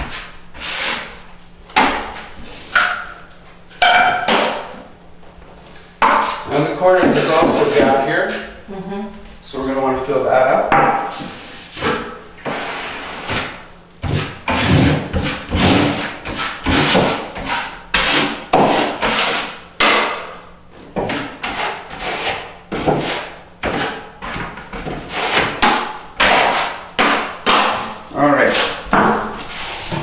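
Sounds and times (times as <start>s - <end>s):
taping knife scraping metal pan: 11.1s - 20.0s, 21.0s - 30.0s.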